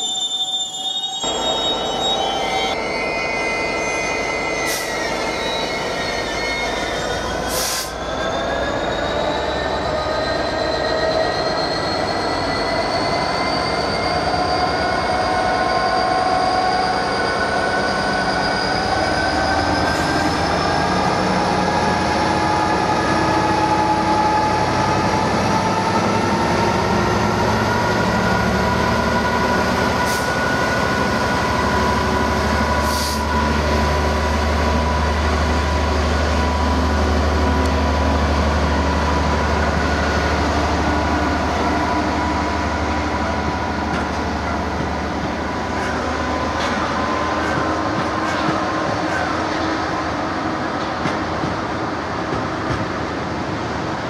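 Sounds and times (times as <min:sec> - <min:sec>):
locomotive whine rising: 0:00.0 - 0:54.0
train clanks: 0:43.2 - 0:53.6.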